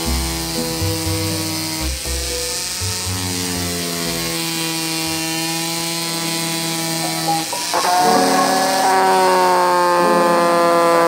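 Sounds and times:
background music: 0:00.0 - 0:04.4, 0:07.0 - 0:10.8
rotary tool whining: 0:00.0 - 0:11.0.

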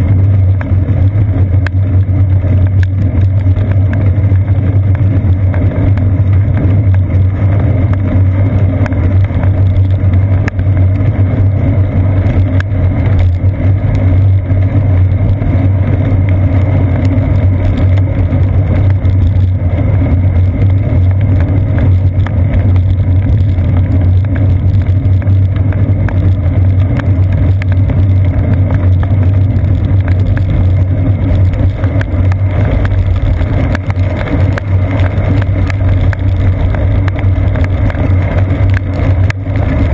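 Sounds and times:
wind and road vibration rumble: 0:00.0 - 0:39.9.

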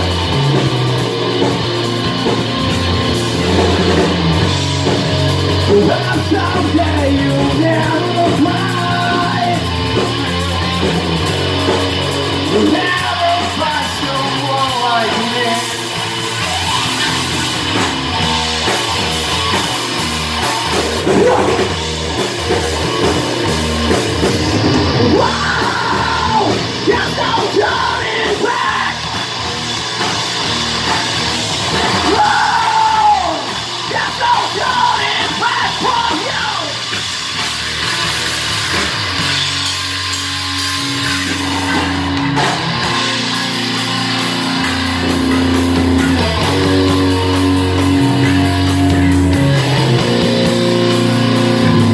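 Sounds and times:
drum kit: 0:00.0 - 0:51.9
electric bass: 0:00.0 - 0:51.9
electric guitar: 0:00.0 - 0:51.9
person singing: 0:05.6 - 0:09.8, 0:12.5 - 0:17.3, 0:24.9 - 0:29.1, 0:32.0 - 0:36.8.

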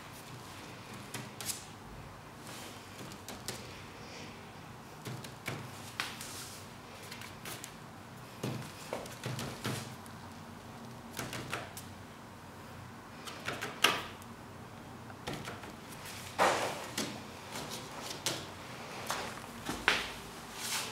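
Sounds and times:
fingertips tapping on paper: 0:02.9 - 0:03.7, 0:05.0 - 0:06.2, 0:08.4 - 0:10.0, 0:11.1 - 0:11.9, 0:13.2 - 0:14.1.

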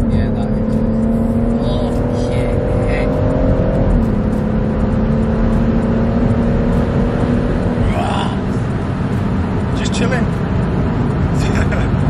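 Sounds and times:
car engine drone inside: 0:00.0 - 0:12.0
tyre and road rumble: 0:00.0 - 0:12.0.

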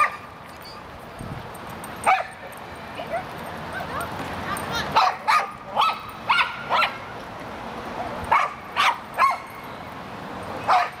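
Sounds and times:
dog barking: 0:05.0 - 0:07.0, 0:08.3 - 0:09.4, 0:10.7 - 0:11.0.

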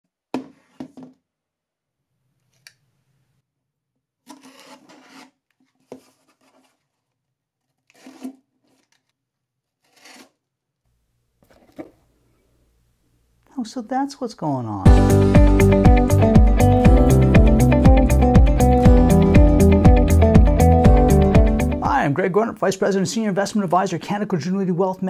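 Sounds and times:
box cutter slicing tape: 0:04.2 - 0:05.4, 0:07.9 - 0:09.1, 0:09.8 - 0:10.4.

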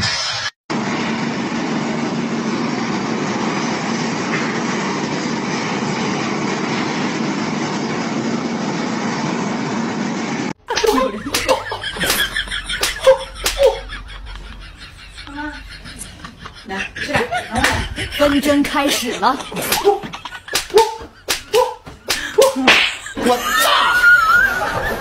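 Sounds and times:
person speaking: 0:10.7 - 0:12.2, 0:15.3 - 0:23.4
sharp slaps: 0:10.7 - 0:13.8, 0:19.6 - 0:23.2.

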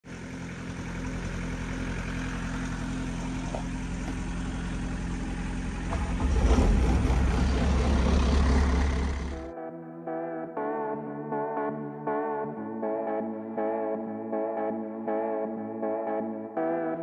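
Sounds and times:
farm machine engine running: 0:00.1 - 0:09.5.

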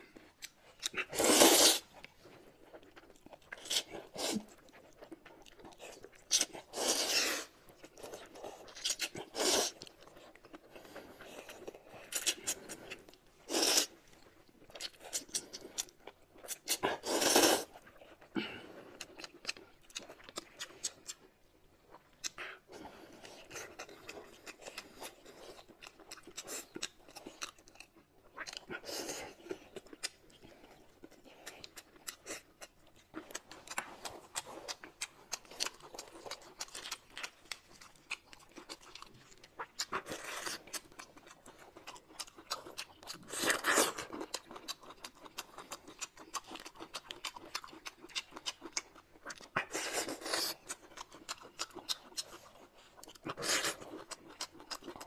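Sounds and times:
wet chewing: 0:00.0 - 0:55.0
slurping noodles: 0:01.0 - 0:01.9, 0:06.6 - 0:07.6, 0:13.5 - 0:14.0, 0:16.8 - 0:17.8.

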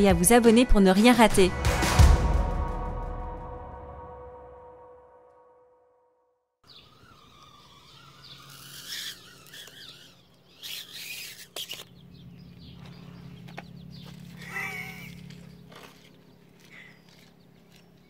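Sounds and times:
high wavering animal calls: 0:06.7 - 0:11.9, 0:14.1 - 0:15.5
steady low hum: 0:06.7 - 0:18.0.

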